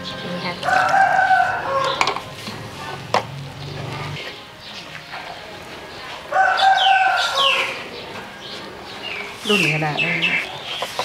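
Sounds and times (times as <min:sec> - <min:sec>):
rooster crowing: 0:00.6 - 0:02.1, 0:06.3 - 0:07.8.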